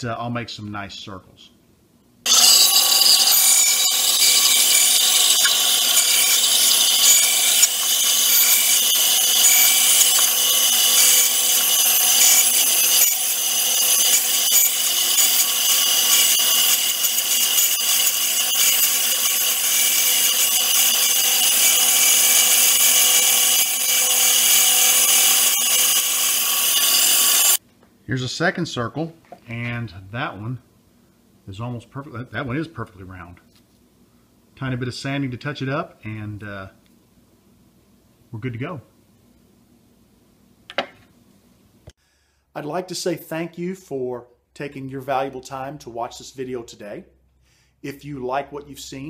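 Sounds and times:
bandsaw cutting wood: 2.3s - 27.6s.

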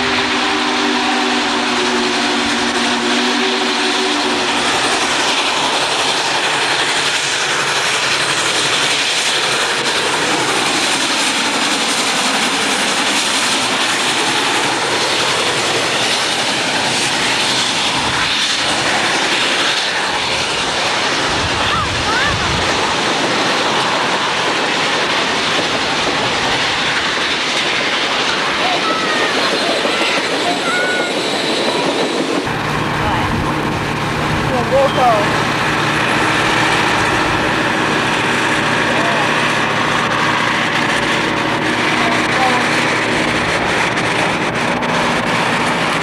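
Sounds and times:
steam locomotive chime whistle: 0.0s - 4.6s, 34.7s - 35.3s
train rushing past: 0.0s - 46.0s.

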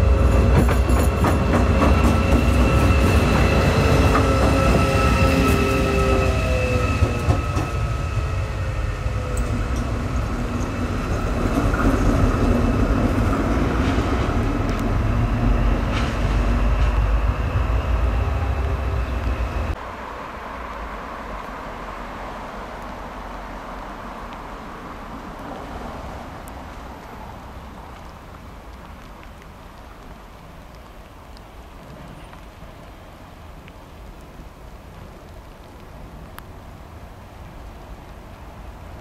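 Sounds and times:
locomotive rumble: 0.0s - 19.8s.

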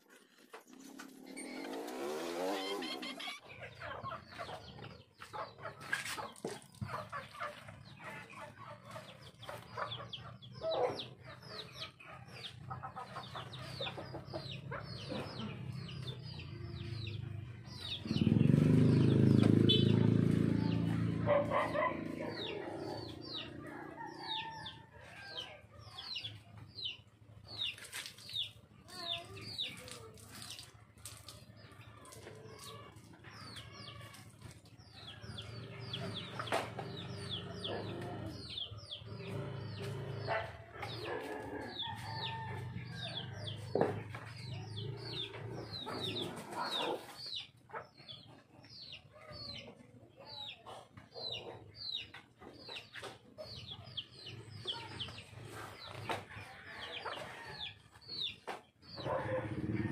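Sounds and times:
chickens clucking: 0.0s - 59.9s.

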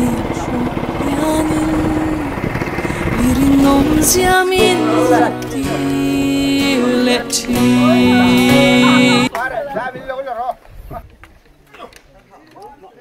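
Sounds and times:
motorboat engine droning: 0.0s - 5.5s, 7.6s - 9.3s
person singing: 0.0s - 9.3s
sustained chords: 7.4s - 9.3s.

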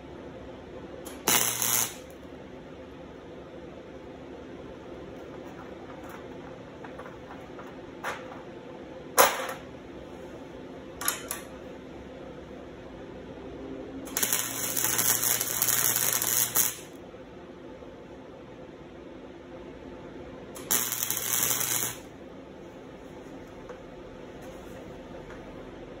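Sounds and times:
electric arc welding sizzle: 1.1s - 2.2s, 14.0s - 17.0s, 20.6s - 22.1s.

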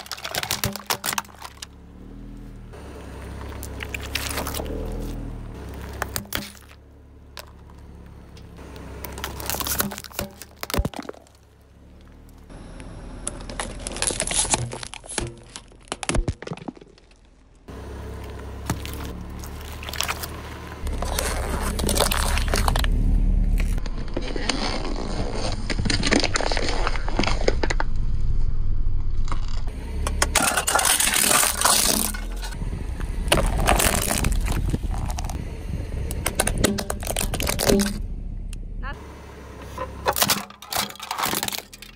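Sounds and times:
tyre crushing plastic objects: 0.0s - 1.8s, 5.8s - 6.8s, 9.0s - 11.5s, 13.2s - 17.5s, 18.6s - 27.8s, 30.2s - 32.6s, 33.3s - 35.4s, 36.2s - 38.0s, 40.1s - 41.9s
low car rumble: 0.0s - 41.9s.

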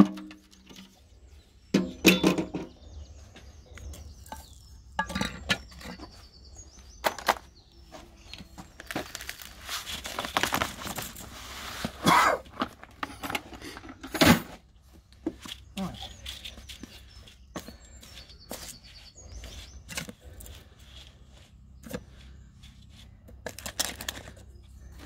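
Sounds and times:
metal bins knocking: 0.0s - 0.9s, 1.7s - 2.8s.

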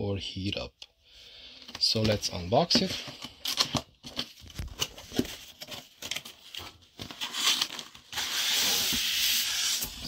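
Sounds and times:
packaging rustling: 1.7s - 9.1s.

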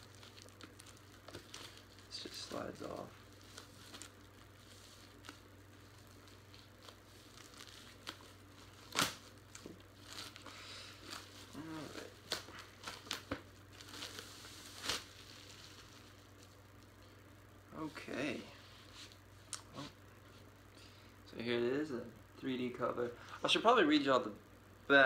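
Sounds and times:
wrapping crinkling and tearing: 0.0s - 17.0s.

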